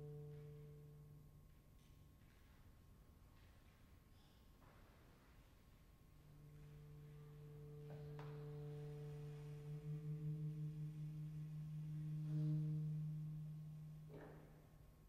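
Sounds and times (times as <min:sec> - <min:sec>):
saxophone low notes: 0:00.0 - 0:01.5, 0:04.2 - 0:15.0
clarinet low notes: 0:00.0 - 0:01.6, 0:04.7 - 0:15.0.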